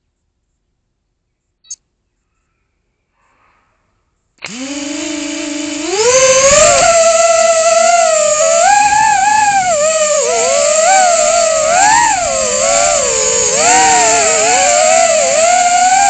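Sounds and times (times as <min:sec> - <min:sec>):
drone motors whining: 0:04.4 - 0:16.0.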